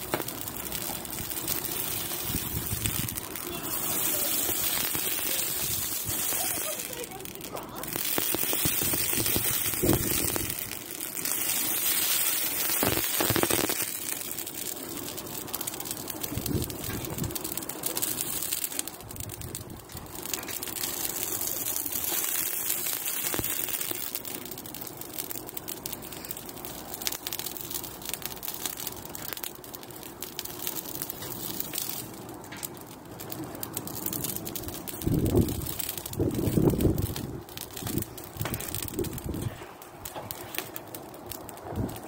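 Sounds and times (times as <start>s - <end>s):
burning twigs crackling and popping: 0.0s - 42.0s.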